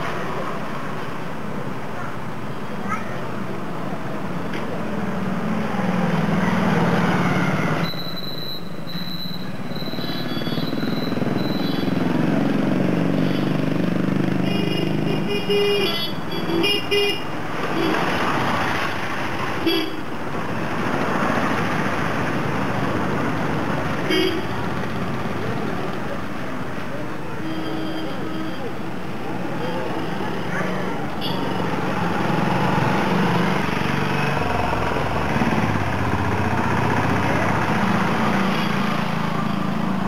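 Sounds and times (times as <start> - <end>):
vehicle engines passing: 0.0 - 40.0.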